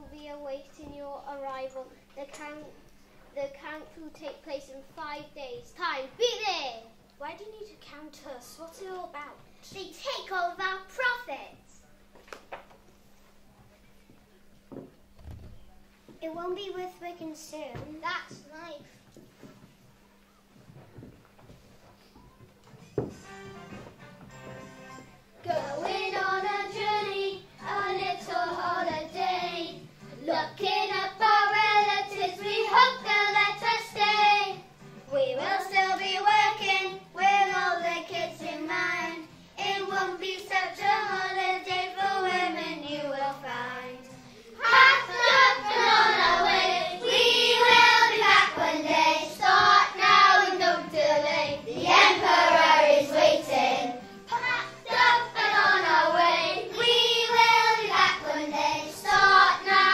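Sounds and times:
musical accompaniment: 0:22.8 - 0:59.9
children singing in unison: 0:25.4 - 0:34.6, 0:44.6 - 0:59.9.

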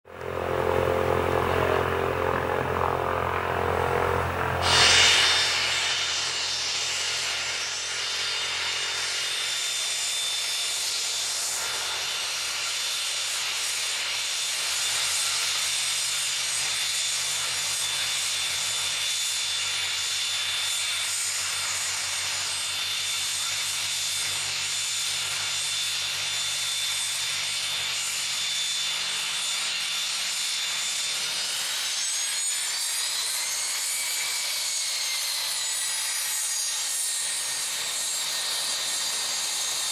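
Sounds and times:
jet engines whining: 0:00.1 - 0:08.2.

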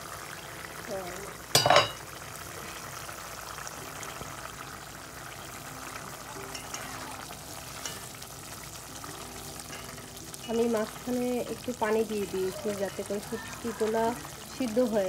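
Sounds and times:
curry bubbling in a pot: 0:00.0 - 0:15.0
metal pot lid clanging: 0:01.5 - 0:02.0, 0:09.6 - 0:10.1.

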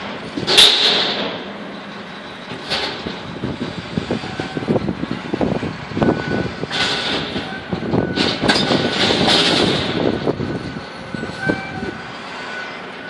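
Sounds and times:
wind buffeting microphone: 0:02.4 - 0:12.3.

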